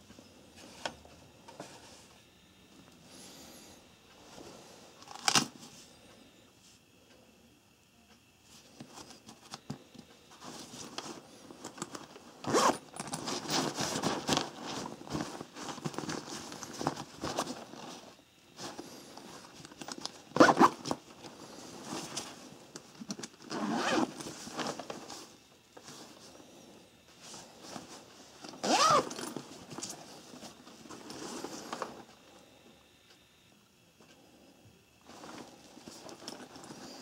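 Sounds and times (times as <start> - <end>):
nylon fabric rustling: 12.4 - 18.8, 23.5 - 25.3, 27.4 - 31.9.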